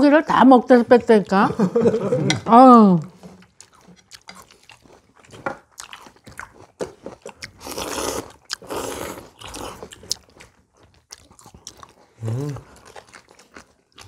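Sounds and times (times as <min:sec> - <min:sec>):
chewing and crunching: 0:03.2 - 0:14.0
noodle slurping: 0:07.4 - 0:10.1.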